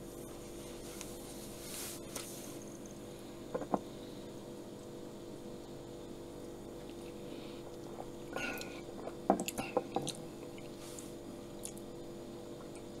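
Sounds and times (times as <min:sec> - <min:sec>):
faint steady hum: 0:00.0 - 0:13.0
person drinking and swallowing: 0:07.7 - 0:10.8.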